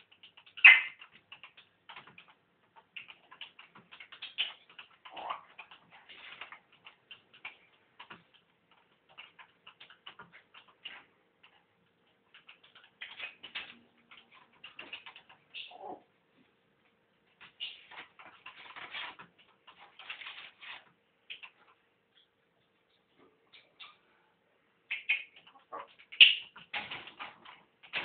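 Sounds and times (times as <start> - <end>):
parrot clicking: 0.0 - 15.8
parrot loud sharp sound: 0.6 - 1.0.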